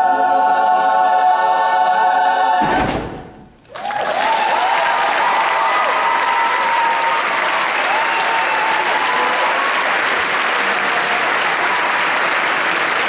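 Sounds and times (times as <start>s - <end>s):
audience applauding: 3.6s - 13.0s
voices whooping: 3.7s - 10.0s.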